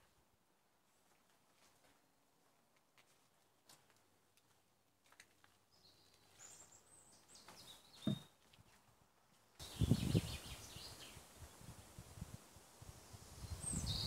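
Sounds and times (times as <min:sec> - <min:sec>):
birds chirping: 0:05.7 - 0:08.4, 0:09.6 - 0:11.3
dull thump: 0:08.0 - 0:08.3.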